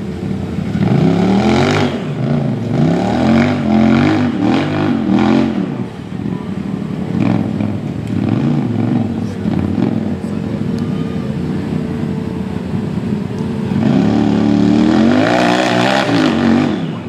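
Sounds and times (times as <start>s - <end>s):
engine revving: 0.6s - 6.1s, 13.4s - 17.0s.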